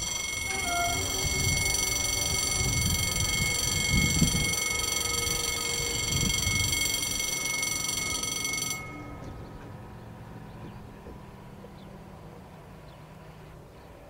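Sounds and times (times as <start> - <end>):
wind buffeting microphone: 0.0 - 8.0
level crossing warning bell: 0.0 - 10.3.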